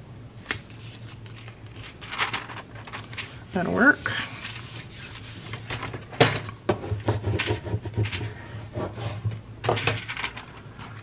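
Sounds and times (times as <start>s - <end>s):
paper rustling: 0.4s - 6.1s.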